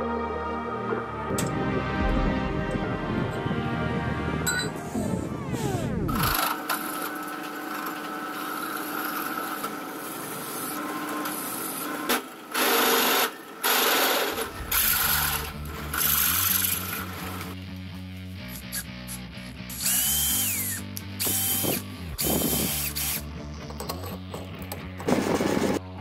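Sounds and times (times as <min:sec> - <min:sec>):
drill press motor whine: 0:04.9 - 0:17.5, 0:19.7 - 0:24.0
drill bit boring into metal: 0:19.7 - 0:23.3.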